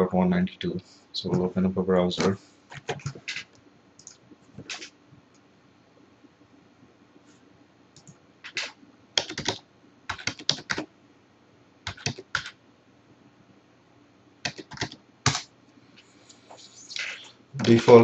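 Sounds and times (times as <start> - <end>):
computer keyboard typing: 8.0 - 10.9, 11.9 - 12.6, 14.4 - 15.5.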